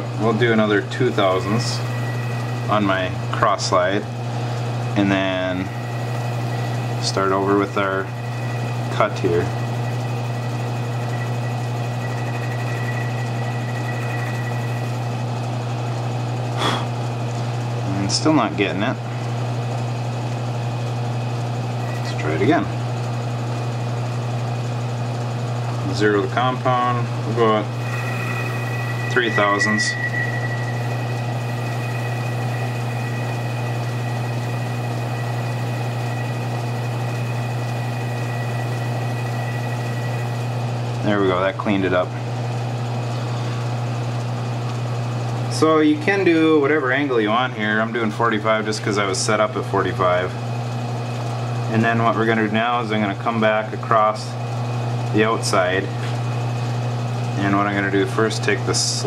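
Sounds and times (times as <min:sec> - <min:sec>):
metal lathe humming: 0:00.0 - 0:17.8, 0:19.0 - 0:45.5
thin high cutting tone: 0:00.2 - 0:04.1, 0:05.0 - 0:15.6, 0:26.7 - 0:41.5.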